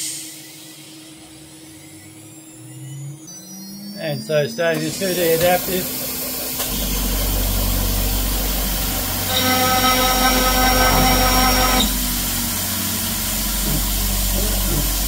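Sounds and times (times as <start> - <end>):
end mill squealing in aluminium: 4.8 - 15.0
spindle running: 4.8 - 15.0.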